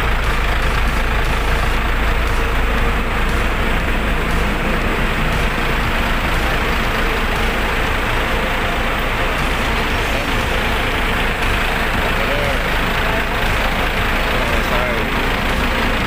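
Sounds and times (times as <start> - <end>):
bus engines idling: 0.0 - 16.0.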